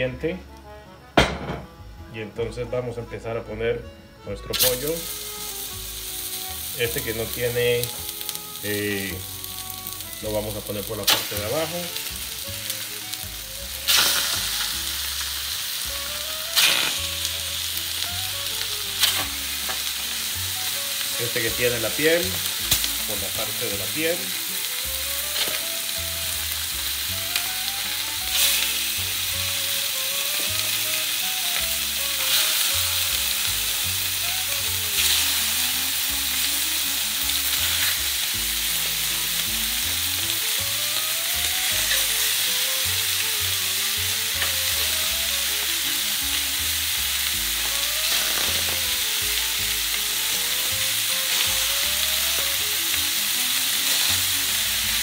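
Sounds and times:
short knocks in pan: 0:01.2 - 0:01.7
chicken sizzling in a hot pan: 0:04.2 - 0:55.0.

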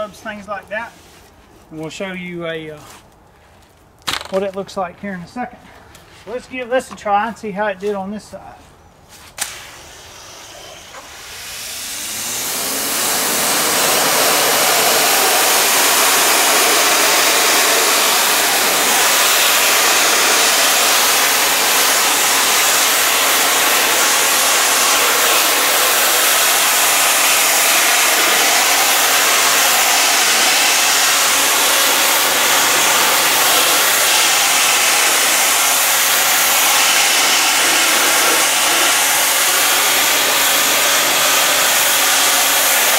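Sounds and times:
spray jet hissing: 0:09.4 - 0:42.9
pressure washer motor humming: 0:09.7 - 0:42.9.

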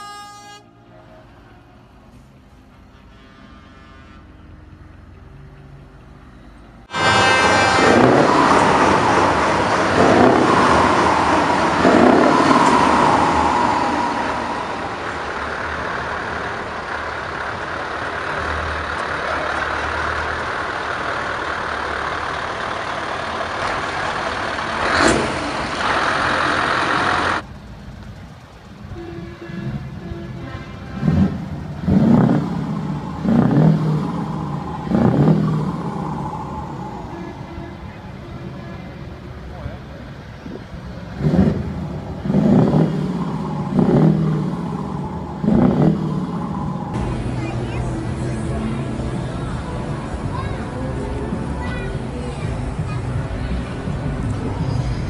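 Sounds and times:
truck engine revving: 0:04.4 - 0:55.0.

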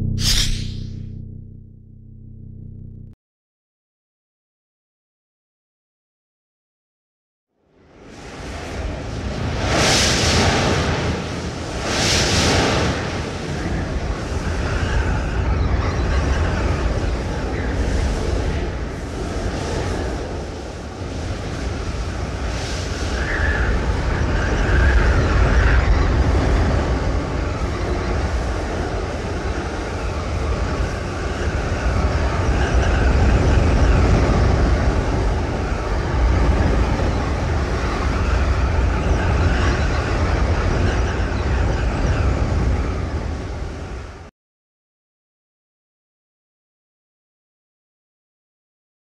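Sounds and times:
rushing wind rumble: 0:07.7 - 0:44.3.

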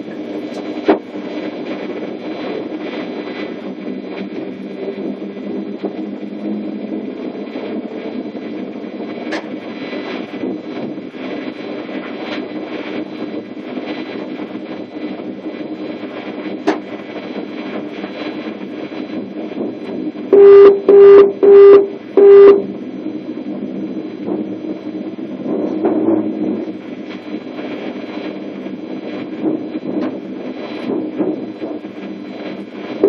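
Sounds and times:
train running noise: 0:14.8 - 0:33.0
cab buzzer beeps: 0:20.4 - 0:22.7.

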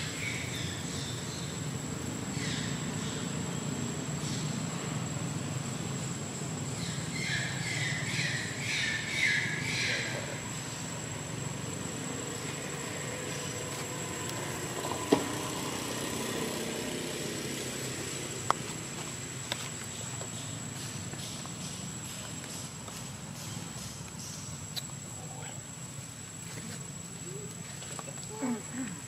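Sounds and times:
outdoor background rumble: 0:00.0 - 0:29.0.

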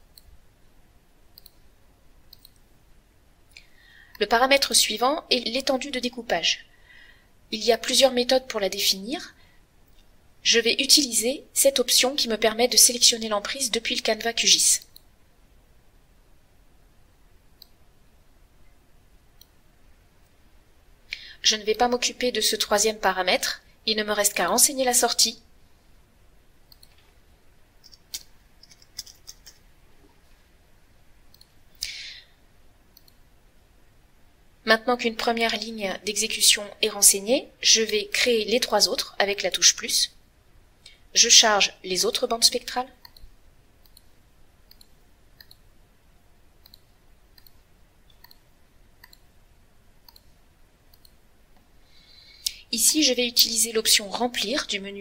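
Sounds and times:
mouse clicks: 0:01.3 - 0:01.6, 0:02.3 - 0:02.7, 0:26.7 - 0:27.1, 0:31.3 - 0:32.0, 0:32.9 - 0:33.2, 0:43.0 - 0:44.1, 0:44.7 - 0:45.7, 0:46.6 - 0:49.3, 0:50.0 - 0:50.3, 0:50.9 - 0:51.7
keyboard typing: 0:02.3 - 0:02.6, 0:26.7 - 0:27.1, 0:27.8 - 0:29.6, 0:43.0 - 0:45.7, 0:46.6 - 0:49.3, 0:50.9 - 0:51.2.

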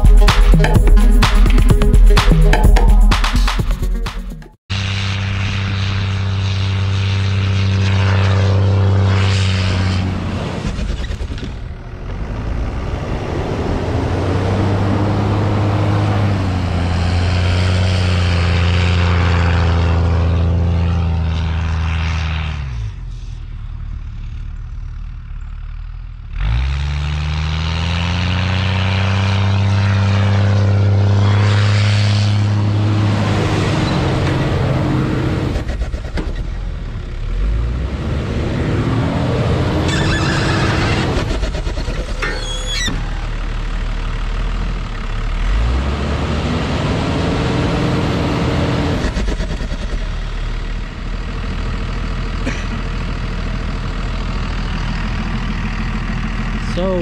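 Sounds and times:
truck engine working hard: 0:00.0 - 0:57.0.

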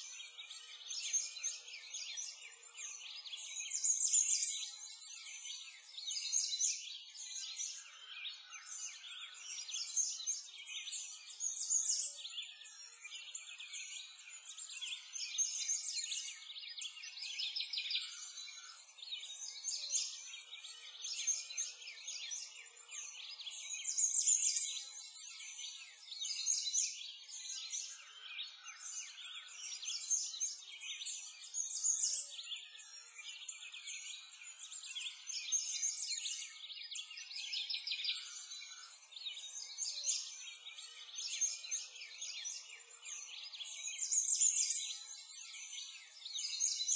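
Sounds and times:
songbirds chirping: 0:00.0 - 0:46.9.

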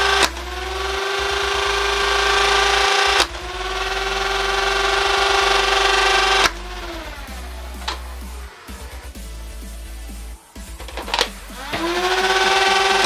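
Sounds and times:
sharp dart blaster shots: 0:00.0 - 0:08.3
blaster motors whining: 0:00.0 - 0:13.0.

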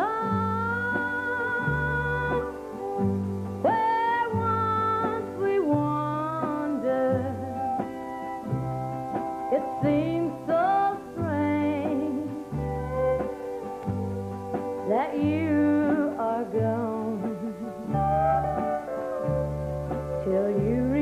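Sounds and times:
bass line: 0:00.0 - 0:06.5, 0:11.2 - 0:21.0
woman singing: 0:00.0 - 0:07.9, 0:09.4 - 0:13.3, 0:14.7 - 0:18.6, 0:20.1 - 0:21.0
country band playing: 0:00.0 - 0:21.0.

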